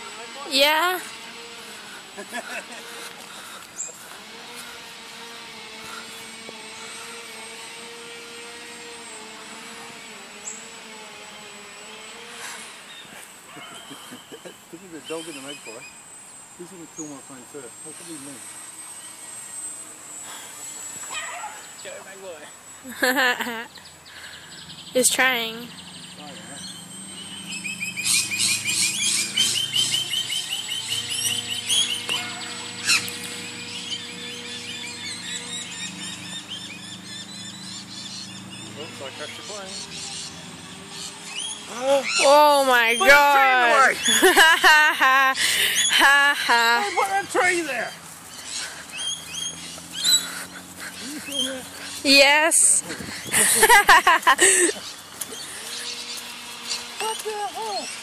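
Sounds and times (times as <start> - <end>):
birds chirping: 0.0 - 58.0
model plane motor droning: 0.0 - 58.0
high chirp: 23.7 - 44.4, 47.8 - 50.3
loud sharp bird call: 26.0 - 42.3.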